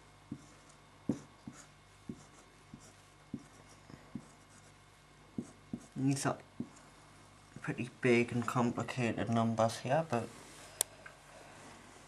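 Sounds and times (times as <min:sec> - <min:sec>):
marker tapping on whiteboard: 0:01.1 - 0:04.3.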